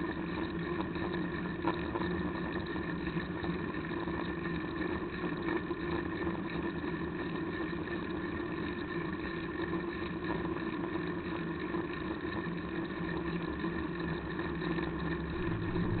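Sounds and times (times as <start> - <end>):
bicycle road vibration rumble: 0.0 - 16.0
wind noise: 15.2 - 16.0.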